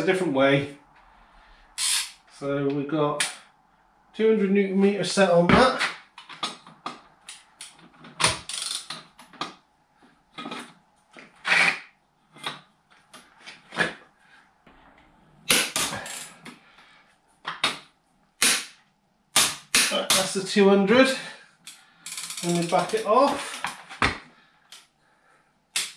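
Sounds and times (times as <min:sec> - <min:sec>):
torque wrench ratcheting: 0:08.4 - 0:09.0, 0:22.1 - 0:23.0.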